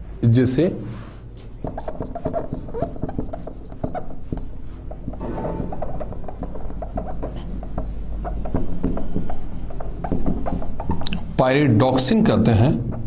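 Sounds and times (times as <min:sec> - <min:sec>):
marker scratching on whiteboard: 0:01.4 - 0:11.3.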